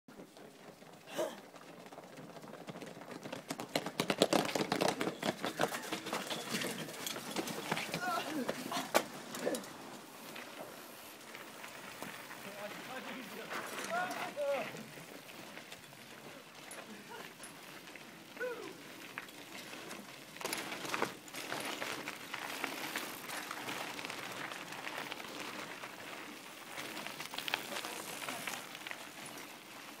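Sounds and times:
footsteps running on tarmac: 0:00.1 - 0:08.8
bicycle tyres rolling on gravel: 0:00.1 - 0:30.0
bike frames rattling: 0:02.0 - 0:30.0.

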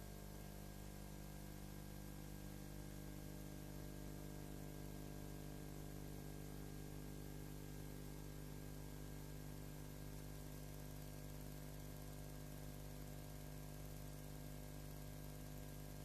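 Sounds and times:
electrical hum: 0:00.0 - 0:08.2.

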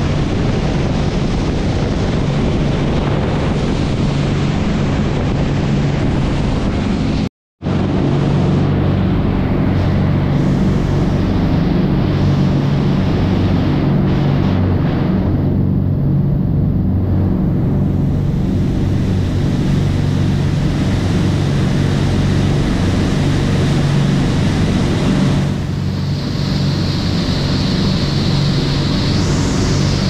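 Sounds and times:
boat engines droning: 0:00.0 - 0:30.0
wake rushing: 0:00.0 - 0:30.0.

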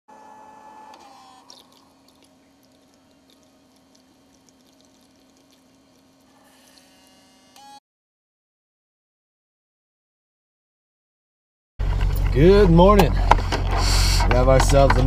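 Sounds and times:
coffee maker low hum: 0:00.1 - 0:07.8
coffee maker pump whine: 0:00.1 - 0:07.8, 0:11.8 - 0:15.0.

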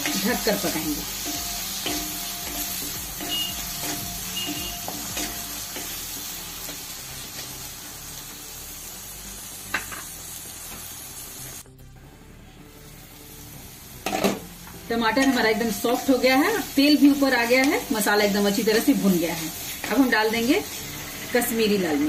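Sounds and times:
food sizzling in oil: 0:00.0 - 0:11.6, 0:12.7 - 0:22.0.

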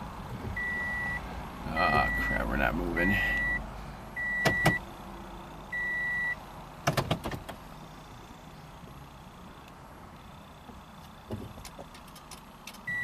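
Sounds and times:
high car beeps: 0:00.6 - 0:04.9, 0:05.7 - 0:06.4.

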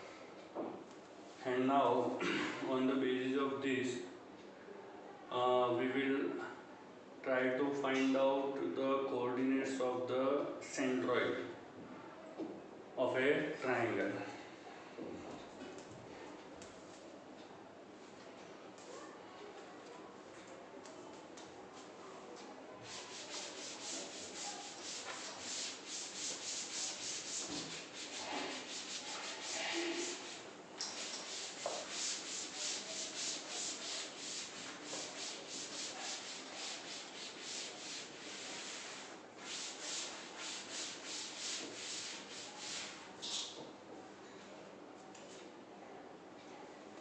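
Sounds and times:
eraser rubbing on chalkboard: 0:22.8 - 0:43.5.

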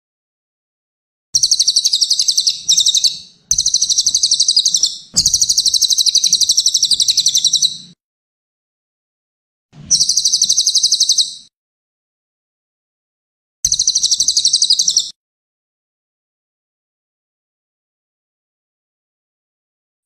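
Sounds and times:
songbird singing buzzy trills: 0:01.4 - 0:08.0, 0:09.9 - 0:11.5, 0:13.7 - 0:15.1.

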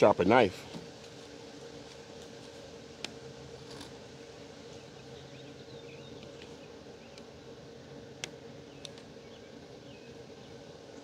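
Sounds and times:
steady low hum: 0:00.0 - 0:11.0
birds chirping: 0:03.9 - 0:11.0.

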